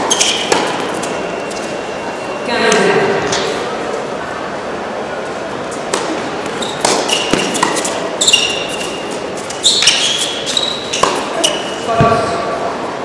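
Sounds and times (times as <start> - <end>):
tennis ball struck and bouncing: 0.0 - 1.0, 5.9 - 8.8, 10.9 - 12.2
shoes squeaking on court: 0.0 - 3.6, 5.6 - 12.4.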